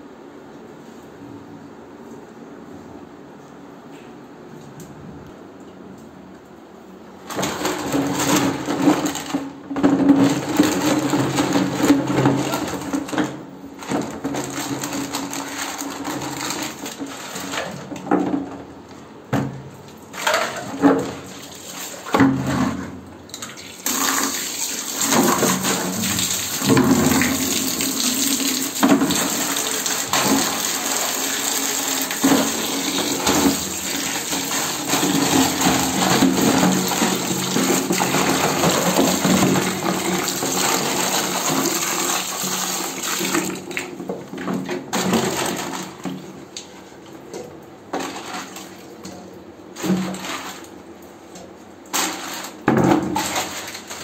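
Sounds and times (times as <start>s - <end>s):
water sloshing in a plastic bucket: 7.2s - 54.0s
tap running into bucket: 20.1s - 46.7s, 47.3s - 54.0s.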